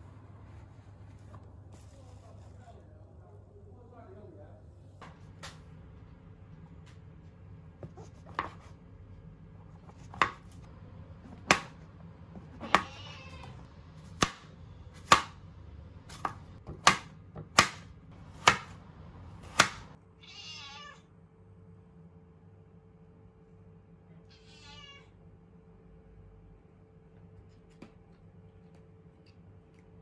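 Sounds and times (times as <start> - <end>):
knife chopping on cutting board: 7.8 - 8.8, 9.8 - 10.6, 11.3 - 11.8, 12.4 - 12.9, 14.0 - 15.4, 16.1 - 18.8, 19.4 - 20.0
cat meowing: 12.5 - 13.7, 20.2 - 21.1, 24.3 - 25.2.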